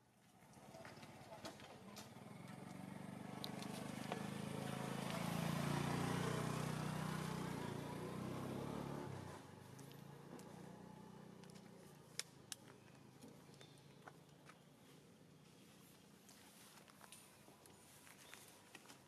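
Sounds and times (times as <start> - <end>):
motor vehicle driving past: 2.1 - 11.7.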